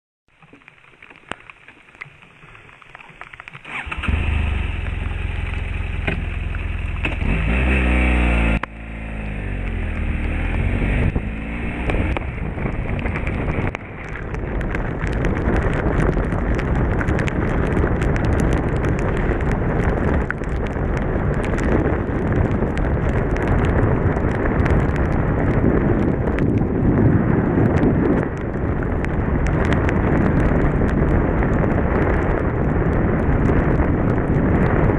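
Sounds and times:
raindrops ticking on microphone: 0:00.3 - 0:34.9
motorcycle engine: 0:03.6 - 0:19.8
wind rush: 0:03.6 - 0:34.9.

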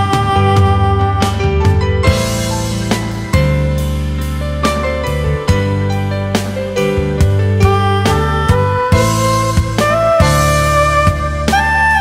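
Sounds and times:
instrumental background music: 0:00.0 - 0:12.0.

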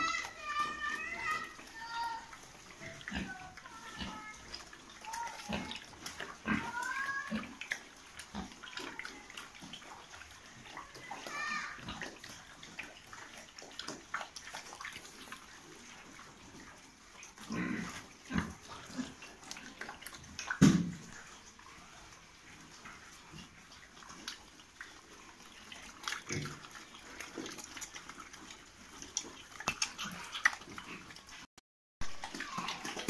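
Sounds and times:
pigs grunting and snuffling: 0:00.0 - 0:33.0
knocks and thumps: 0:20.6 - 0:21.0.

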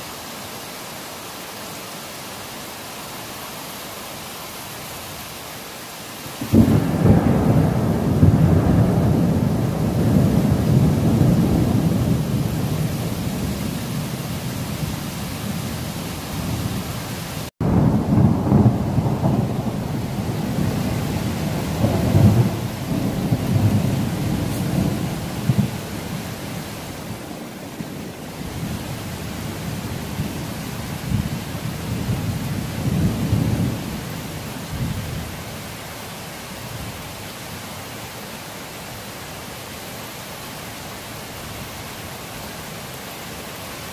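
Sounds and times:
rain hissing: 0:00.0 - 0:43.9
thunder rumbling: 0:06.4 - 0:35.2.

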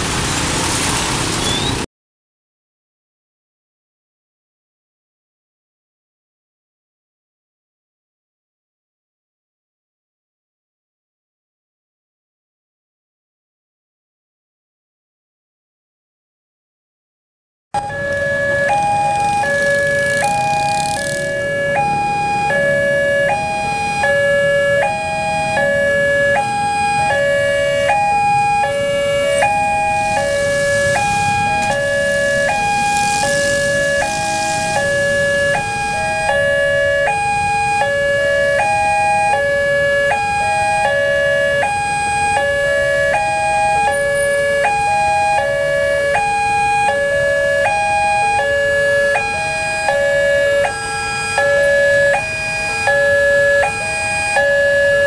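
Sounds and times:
road traffic noise: 0:00.0 - 0:01.9, 0:17.8 - 0:55.0
level-crossing alarm tones: 0:17.8 - 0:55.0.

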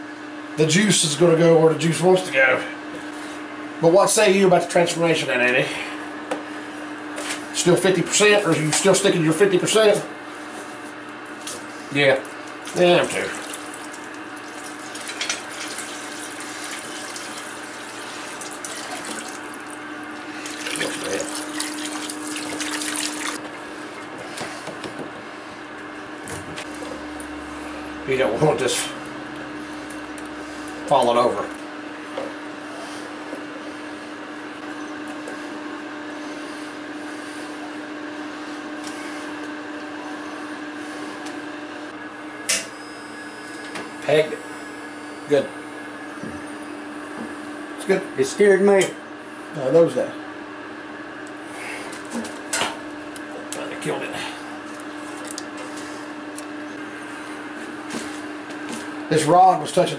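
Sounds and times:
battery charger humming: 0:11.3 - 0:41.7
liquid pouring into plastic barrel: 0:13.3 - 0:19.8, 0:20.4 - 0:23.4.

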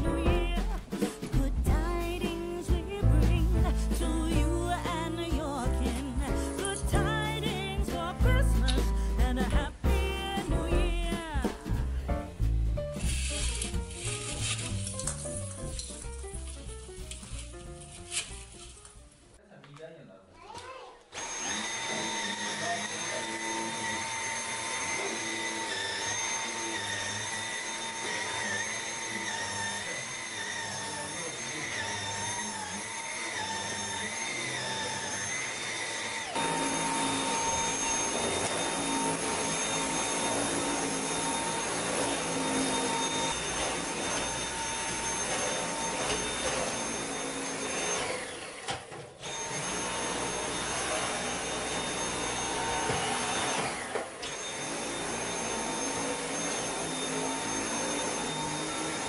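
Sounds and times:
vacuum cleaner whining: 0:21.1 - 0:59.0.

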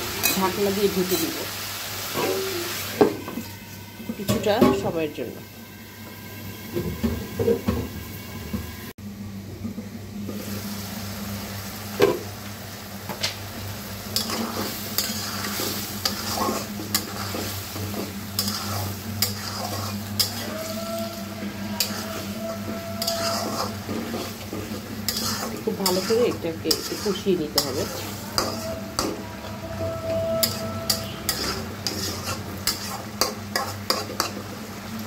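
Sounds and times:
meat sizzling: 0:00.0 - 0:08.5, 0:10.2 - 0:35.0
spatula scraping pan: 0:14.1 - 0:34.6.

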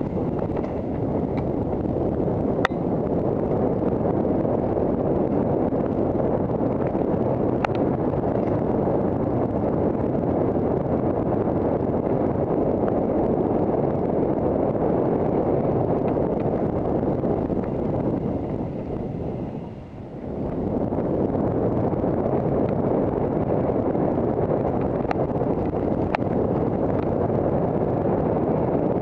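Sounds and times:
sharp clicks and rattles: 0:00.0 - 0:01.9, 0:24.6 - 0:27.2
tyres rumbling over dirt trail: 0:00.0 - 0:12.6
wind buffeting microphone: 0:00.0 - 0:29.0.

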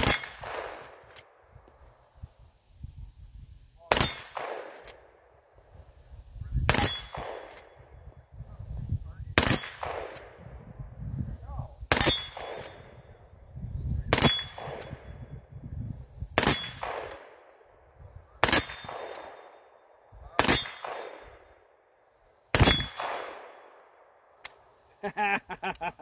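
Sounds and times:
rifle shots: 0:00.0 - 0:01.4, 0:03.8 - 0:05.2, 0:06.7 - 0:07.8, 0:09.4 - 0:10.4, 0:11.9 - 0:13.0, 0:14.1 - 0:15.2, 0:16.4 - 0:17.6, 0:18.3 - 0:21.7, 0:22.5 - 0:24.2
steel plate target clanging: 0:06.7 - 0:07.6, 0:12.0 - 0:12.9, 0:14.2 - 0:15.0, 0:16.4 - 0:17.3, 0:18.4 - 0:19.6, 0:20.4 - 0:21.4
small metallic click: 0:24.4 - 0:24.6.

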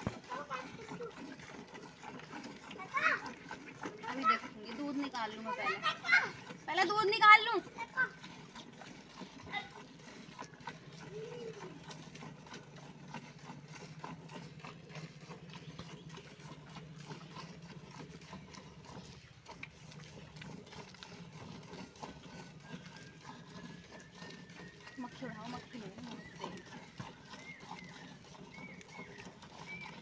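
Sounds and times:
milk squirting into steel bucket: 0:00.0 - 0:30.0.

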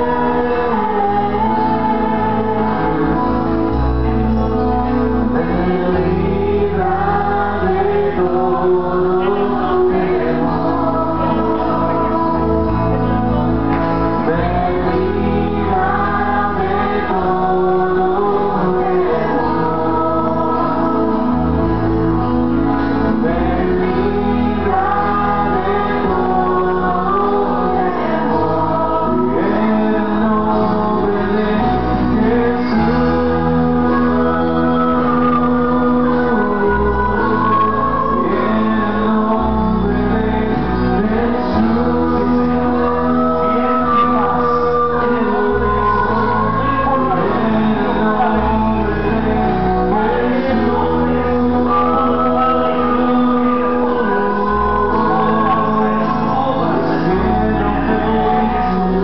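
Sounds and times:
congregation singing worship song: 0:00.0 - 0:59.0
instrumental accompaniment with bass: 0:00.0 - 0:59.0.

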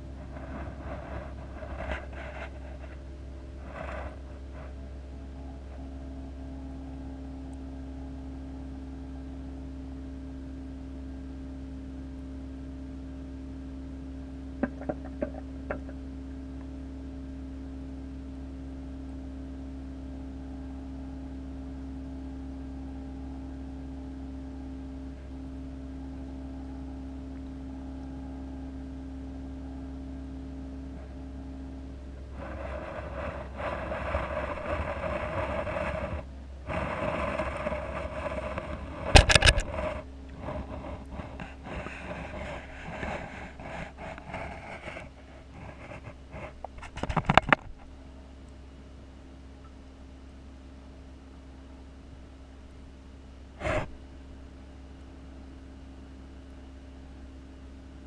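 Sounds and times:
scraping and rustling: 0:00.0 - 0:05.8, 0:32.2 - 0:48.0, 0:53.6 - 0:54.0
aquarium equipment humming: 0:00.0 - 0:58.0.

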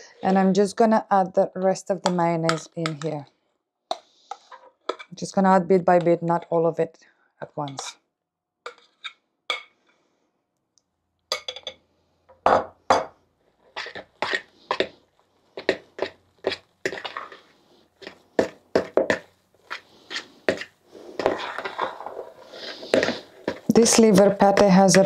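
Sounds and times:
wet mixing strokes in bowl: 0:19.6 - 0:24.8.

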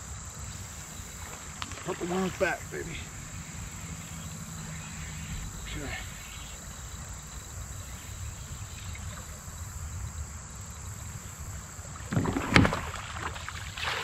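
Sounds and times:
water splashing in a river: 0:00.7 - 0:07.1, 0:11.2 - 0:14.0.

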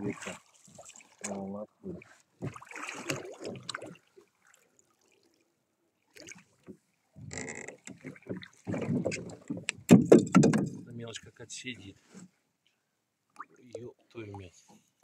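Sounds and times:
oars splashing and knocking on hull: 0:00.0 - 0:04.7, 0:06.1 - 0:11.0.

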